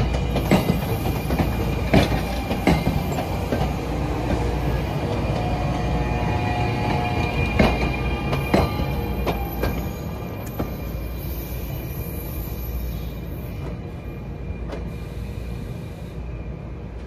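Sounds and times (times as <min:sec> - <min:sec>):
train wheels clicking over rail joints: 0:00.0 - 0:05.6
train rail rumble: 0:00.0 - 0:17.0.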